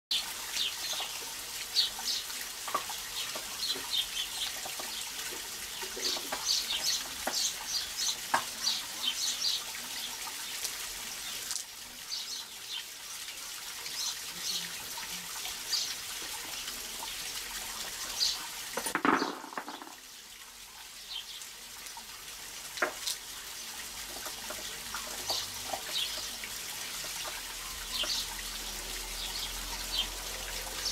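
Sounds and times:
small birds chirping: 0.1 - 2.4, 3.0 - 17.2, 18.0 - 18.5, 25.0 - 26.4, 27.1 - 30.2
trickling water: 0.1 - 30.9.

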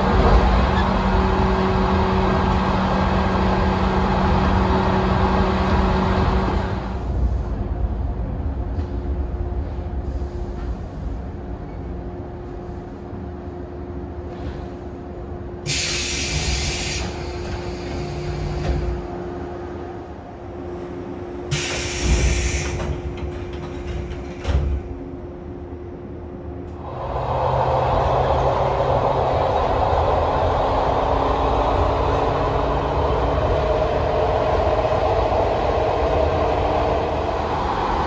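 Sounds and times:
electric train rumble and hum: 0.0 - 38.0
air hissing: 15.7 - 18.2, 21.5 - 22.9.

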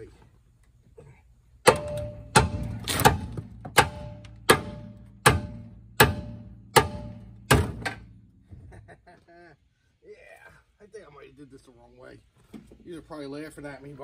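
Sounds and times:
hammer striking metal: 1.6 - 8.1.

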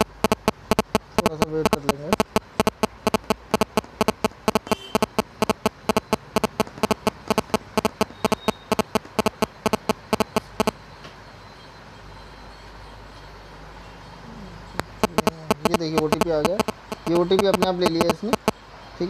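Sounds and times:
rapid sharp clicks: 0.0 - 10.8, 14.8 - 18.6.

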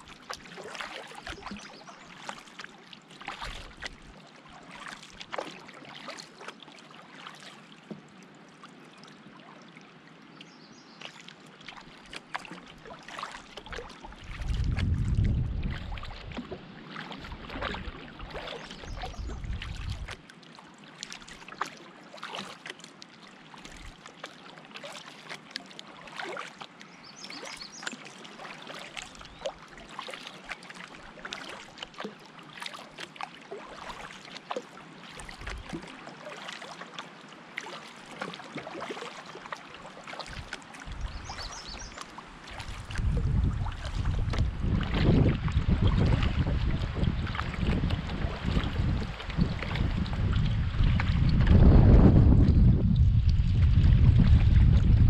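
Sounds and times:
paddle splashing in water: 0.0 - 9.8, 10.4 - 55.0
wind rumble on microphone: 14.2 - 16.6, 17.2 - 20.2, 40.3 - 41.9, 42.6 - 55.0.

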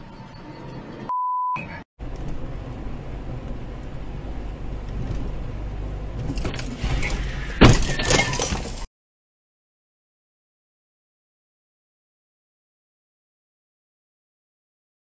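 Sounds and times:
car engine and road noise: 0.0 - 8.9
short steady beep: 1.1 - 1.8
loud car crash: 6.2 - 8.9.

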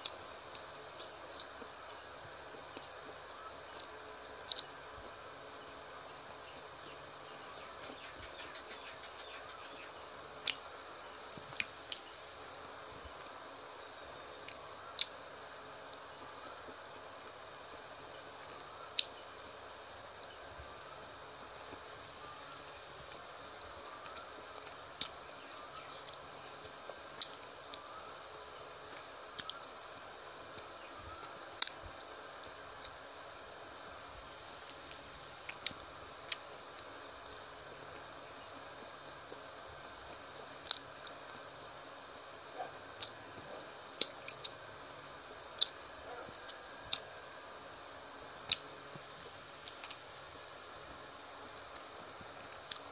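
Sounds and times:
steady background hiss: 0.0 - 52.9
person chewing food: 0.5 - 1.6, 29.4 - 29.6
chewing: 40.7 - 41.2, 52.6 - 52.9.

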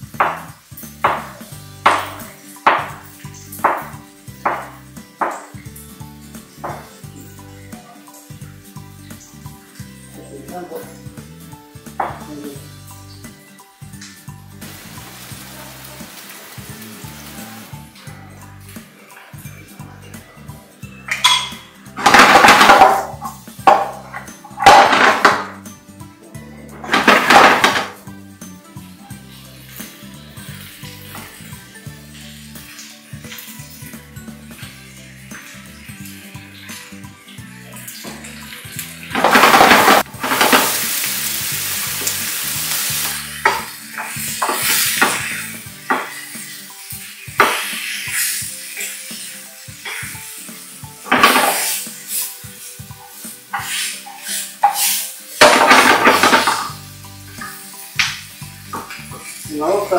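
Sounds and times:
background music: 0.0 - 59.9
spatula knocking and scraping pan: 0.1 - 5.6, 6.5 - 7.0, 21.2 - 25.6, 43.4 - 46.2
vegetables rattling in frying pan: 14.6 - 17.9, 21.2 - 25.7, 26.9 - 28.0, 37.8 - 59.9.

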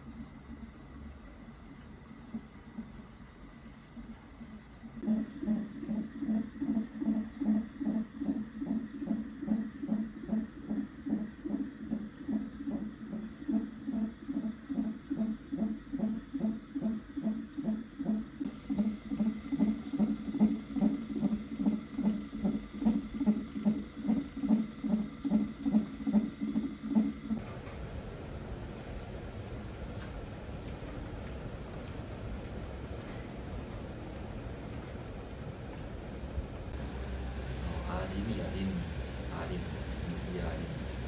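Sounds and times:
fetal heartbeat on monitor: 0.0 - 3.0, 3.9 - 27.8.

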